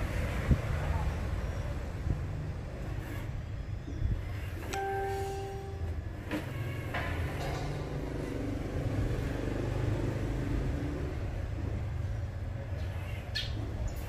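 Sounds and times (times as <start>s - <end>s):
rc car motor rumbling: 0.0s - 4.8s.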